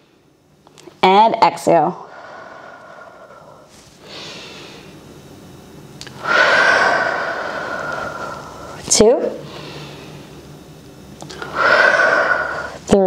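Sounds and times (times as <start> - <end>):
woman breathing: 2.0 - 5.2, 6.0 - 10.4, 11.2 - 12.9.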